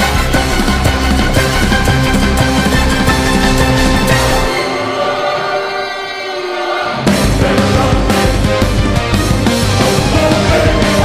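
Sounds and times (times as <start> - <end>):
loud rock music with guitar: 6.9 - 11.0.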